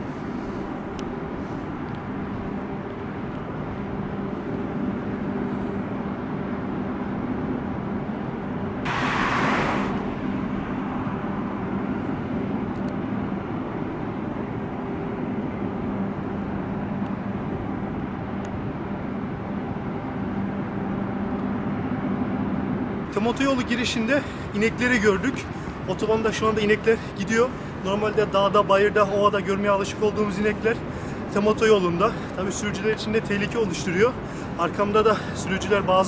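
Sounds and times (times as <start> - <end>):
rumble of vehicle engines: 0.0 - 36.0
loud rushing hiss: 8.9 - 10.6.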